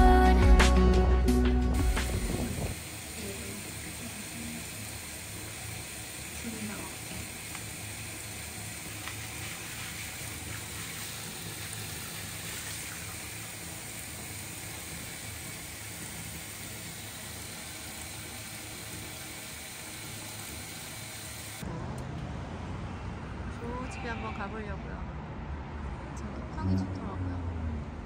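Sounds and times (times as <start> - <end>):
tap water pouring into bathtub: 2.7 - 21.6.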